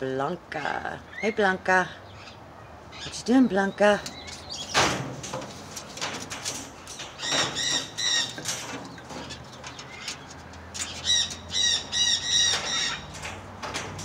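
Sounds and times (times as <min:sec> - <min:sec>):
cockatoo calling: 0:10.8 - 0:13.2.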